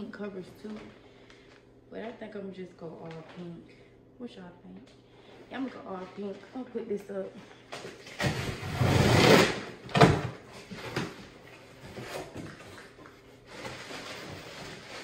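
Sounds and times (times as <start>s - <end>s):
plastic wrapping rustling: 10.5s - 15.0s.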